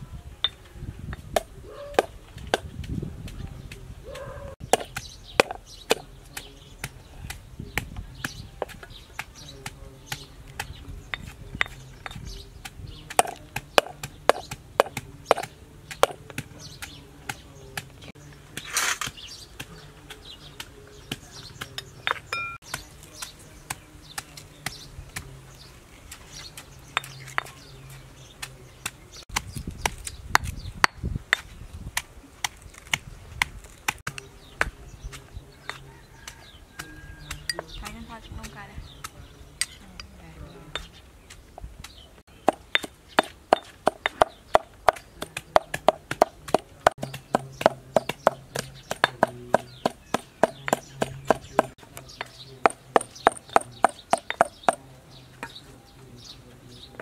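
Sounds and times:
cleaver chopping on wooden board: 4.1 - 17.9, 41.3 - 54.8
pestle pounding in stone mortar: 4.6 - 17.9, 40.8 - 54.8.

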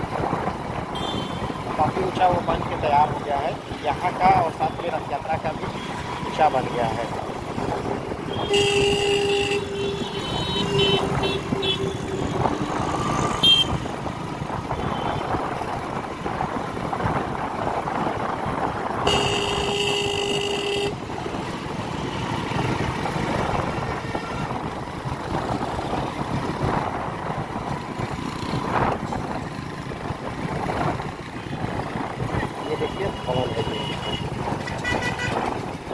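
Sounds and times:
engine tyre and wind noise: 0.0 - 35.9
vehicle horns honking: 1.0 - 1.6, 8.3 - 12.4, 13.4 - 13.9, 19.0 - 21.0, 32.6 - 35.5.

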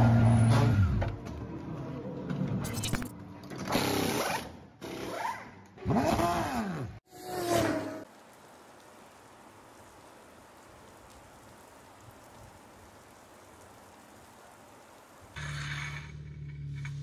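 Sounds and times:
rain falling on wet tarmac: 7.6 - 15.5.

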